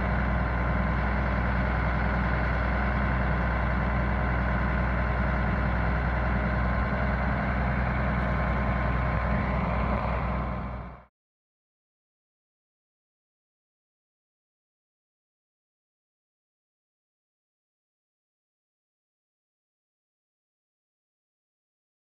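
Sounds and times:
diesel truck engine idling: 0.0s - 11.1s.

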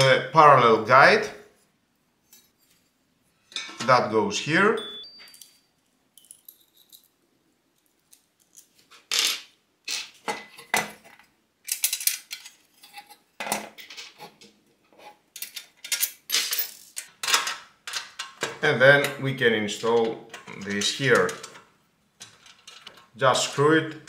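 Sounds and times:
metal parts clinking and clattering: 5.2s - 7.2s, 10.4s - 14.2s, 15.3s - 18.5s, 22.2s - 23.1s.

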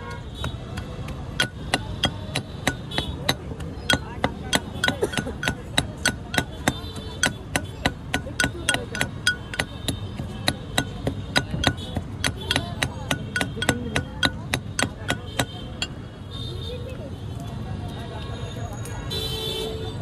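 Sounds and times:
pestle pounding in stone mortar: 0.2s - 16.0s.

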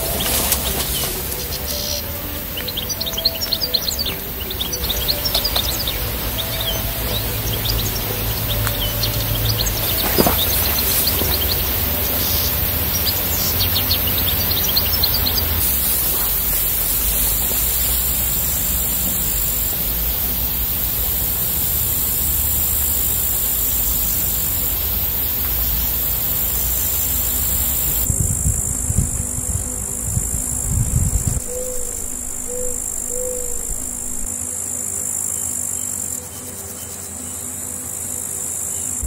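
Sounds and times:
insects shrilling: 0.0s - 39.0s
low rumble: 28.0s - 34.3s.

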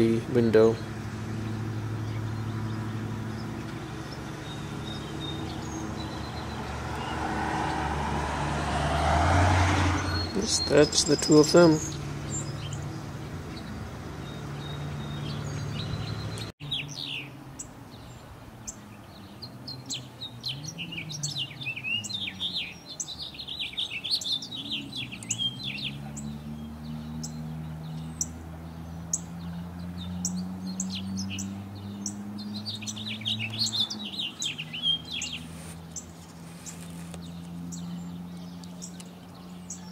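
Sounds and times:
finch singing warble: 0.0s - 7.2s, 10.0s - 39.9s
low hum rising and falling: 0.0s - 10.4s.

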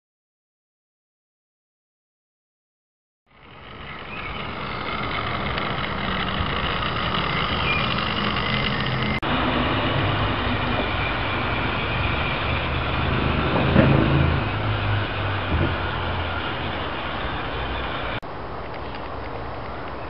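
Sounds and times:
model train rumbling on rails: 3.3s - 18.2s.

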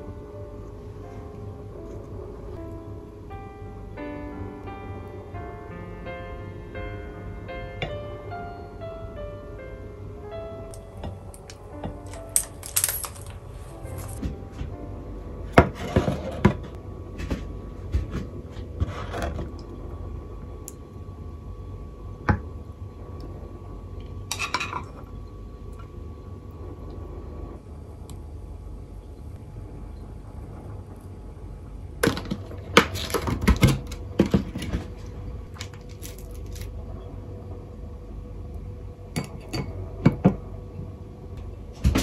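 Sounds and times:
tableware knocking and clinking: 11.4s - 14.2s.

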